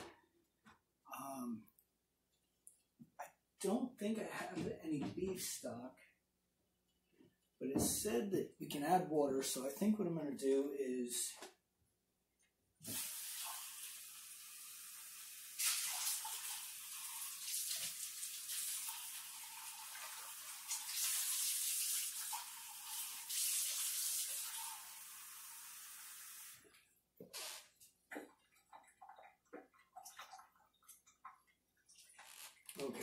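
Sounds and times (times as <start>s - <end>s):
tap water running into cup: 12.8s - 26.6s.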